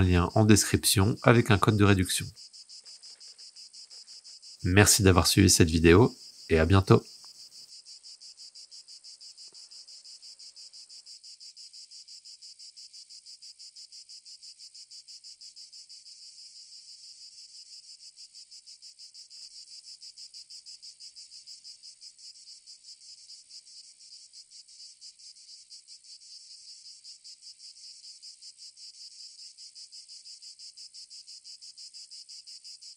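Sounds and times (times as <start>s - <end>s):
insects chirring: 0.0s - 32.9s.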